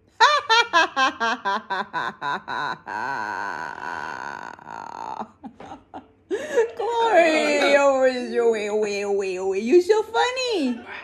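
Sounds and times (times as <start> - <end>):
parrot and woman laughing: 0.2 - 6.3.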